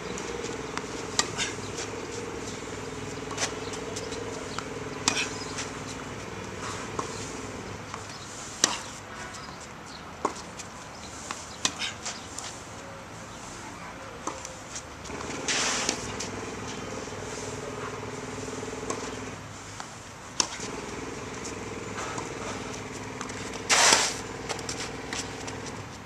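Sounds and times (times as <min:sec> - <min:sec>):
steady low hum: 0:00.0 - 0:07.9, 0:15.1 - 0:19.4
tennis balls struck by racquets: 0:00.1 - 0:09.0, 0:15.1 - 0:19.4, 0:20.4 - 0:25.8.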